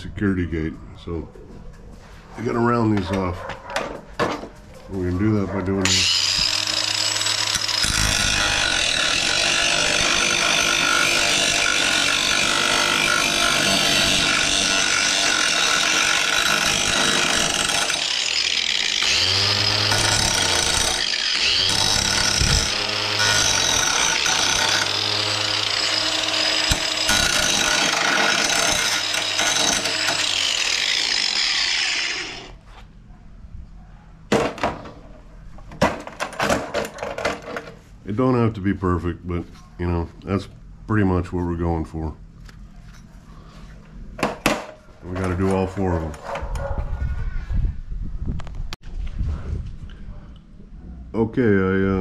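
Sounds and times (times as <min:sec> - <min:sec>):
angle grinder grinding metal: 0:05.3 - 0:32.6.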